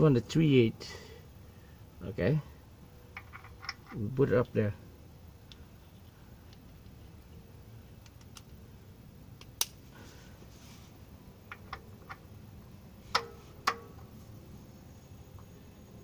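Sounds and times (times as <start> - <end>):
metal ratchet clicks and knocks: 3.2 - 4.0, 11.5 - 12.3, 13.1 - 14.1.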